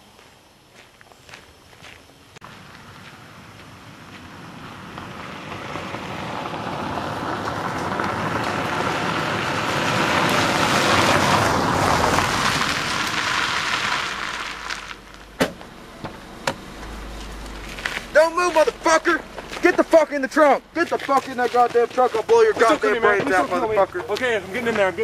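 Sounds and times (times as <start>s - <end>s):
car tyres crunching on gravel: 0.0s - 25.0s.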